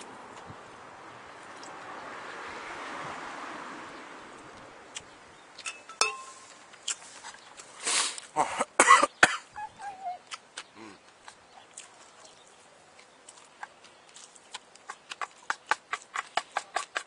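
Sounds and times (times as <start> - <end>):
tableware clinking: 5.6 - 6.5
person coughing: 8.4 - 9.5.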